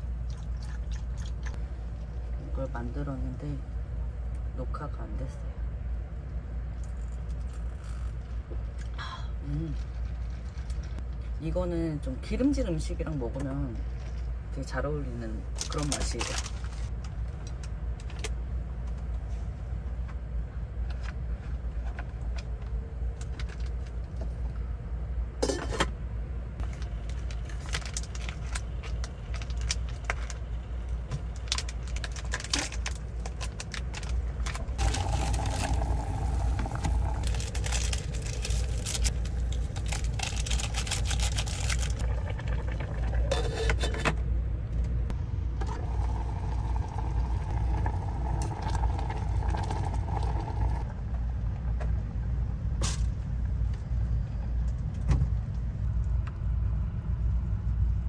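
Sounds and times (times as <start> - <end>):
steady low rumble: 0.0 - 58.0
packets crinkling and tearing: 26.7 - 30.4, 31.3 - 36.0, 36.6 - 42.3.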